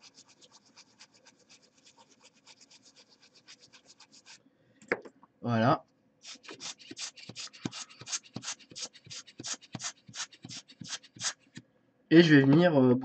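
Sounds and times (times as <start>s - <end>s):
scratchy scrubbing on circuit board: 0.0s - 4.4s, 6.2s - 11.6s.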